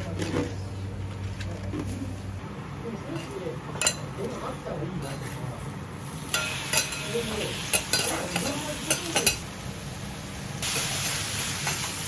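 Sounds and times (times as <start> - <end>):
food sizzling on griddle: 6.0 - 12.0.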